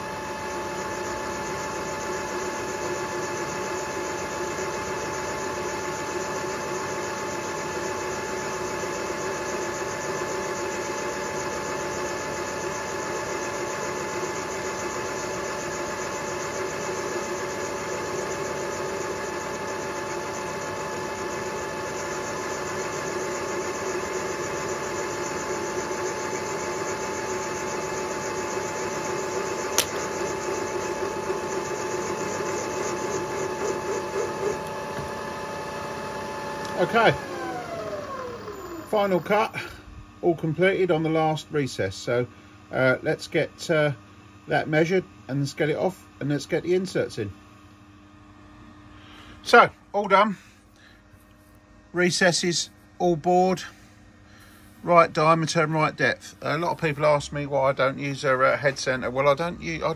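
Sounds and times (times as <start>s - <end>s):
milling machine hum with whining: 0.0s - 59.9s
sharp click: 29.7s - 30.1s.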